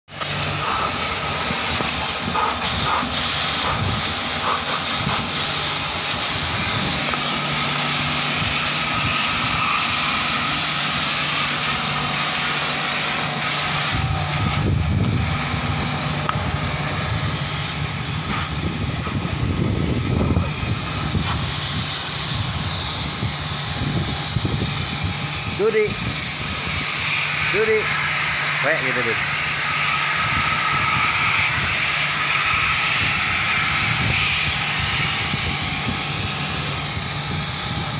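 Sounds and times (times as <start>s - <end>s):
low machine hum: 0.2s - 27.2s
water spray hissing on metal fins: 0.4s - 6.9s.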